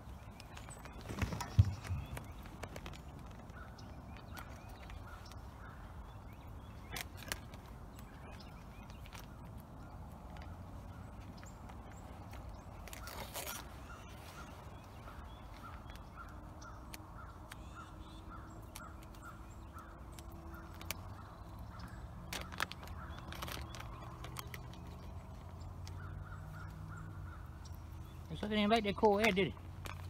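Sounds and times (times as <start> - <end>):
faint bird calls: 0.0 - 30.0.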